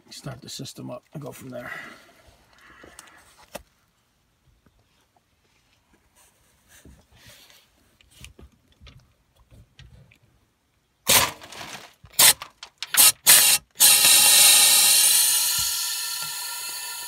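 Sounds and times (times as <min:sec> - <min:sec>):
gas drain gun bursts: 0:11.1 - 0:17.0
gas drain gun long hiss: 0:13.0 - 0:17.0.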